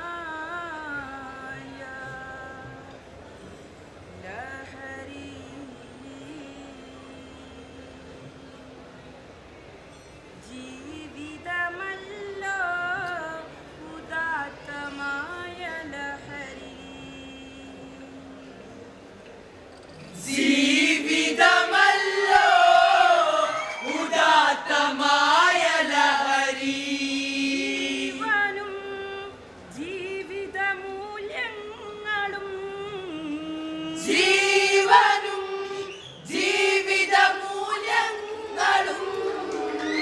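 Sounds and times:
group singing folk song: 20.2s - 28.6s, 33.9s - 40.0s.

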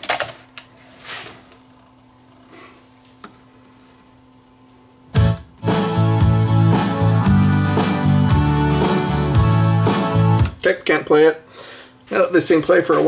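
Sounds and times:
strummed guitar music: 5.2s - 10.6s.

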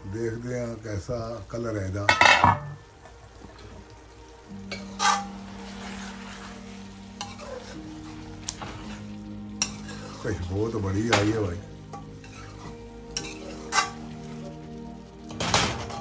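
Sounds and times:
light sizzling: 0.0s - 16.0s
metal pan lid clank: 2.1s - 2.8s, 15.3s - 16.0s
spoon knocking metal pan: 2.1s - 2.8s
spoon stirring and scraping pan: 4.5s - 16.0s.

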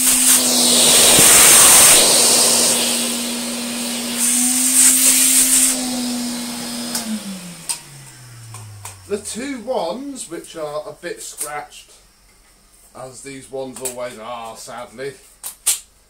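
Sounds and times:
air rushing through hose: 0.0s - 9.5s
vacuum cleaner motor hum: 0.0s - 10.3s.

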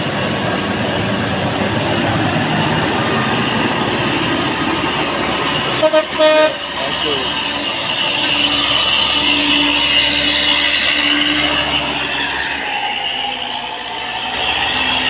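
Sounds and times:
diesel truck engines rumbling: 0.0s - 15.0s
vehicle horn toots: 5.8s - 6.7s.

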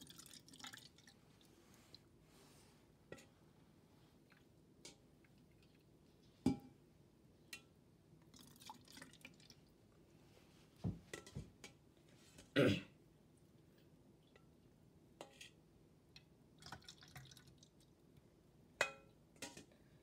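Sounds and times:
liquid dripping into plastic cups: 0.0s - 2.2s, 4.2s - 6.3s, 7.5s - 9.8s, 16.1s - 19.5s.

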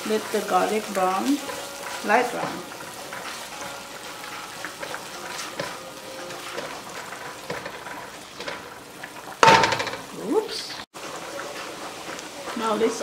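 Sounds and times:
butter sizzling in a frying pan: 0.0s - 13.0s
spoon scraping a pan: 0.1s - 10.1s.

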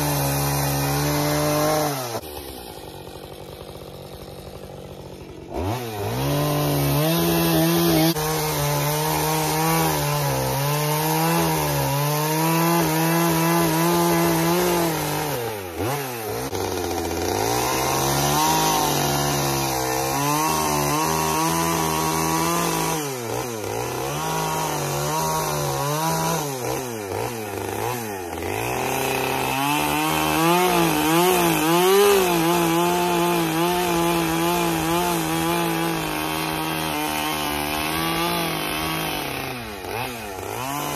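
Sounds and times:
chainsaw cutting wood: 0.0s - 40.9s.

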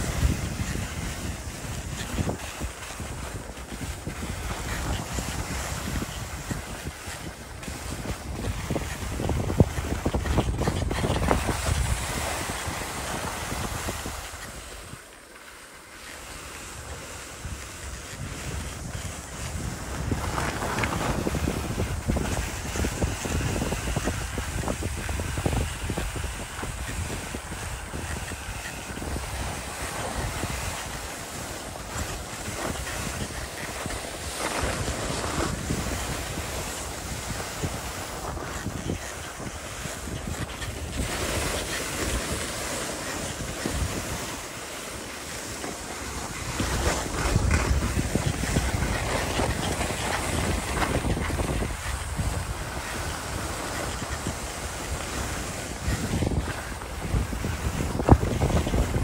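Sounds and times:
wind rushing over microphone: 0.0s - 15.4s, 16.0s - 59.0s
skis scraping over snow: 0.0s - 59.0s.

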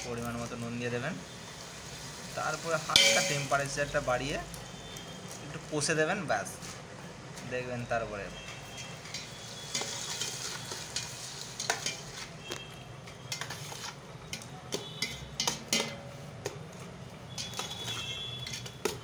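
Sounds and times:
light sizzle of frying: 0.0s - 19.0s
clinks against metal pot: 3.0s - 3.5s, 9.0s - 12.2s, 14.3s - 16.6s, 17.3s - 19.0s
ladle scraping metal pot: 8.6s - 19.0s.

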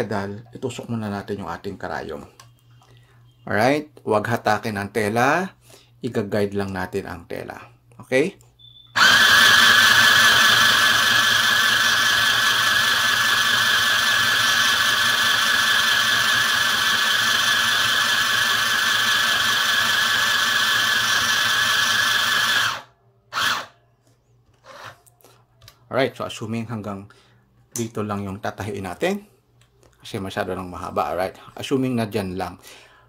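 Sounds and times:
sewing machine motor whine: 9.0s - 23.8s.

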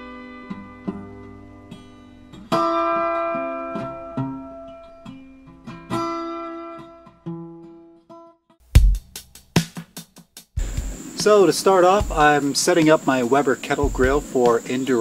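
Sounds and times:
guitar chords strummed: 0.0s - 8.2s
loud low thump: 8.8s - 9.1s.

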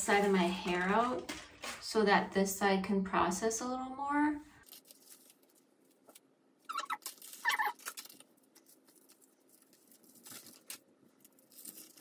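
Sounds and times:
aluminium foils crinkling: 0.0s - 2.0s, 4.6s - 12.0s
short high-pitched squeaks: 6.7s - 7.8s.

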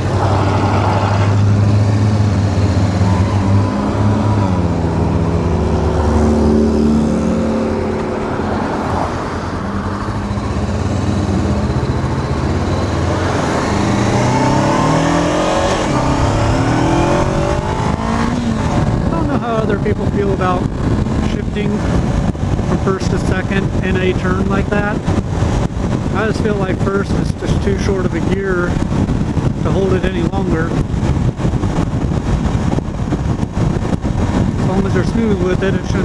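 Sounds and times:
motorcycle engine revving: 0.0s - 26.3s
road and wind noise: 0.0s - 36.0s.

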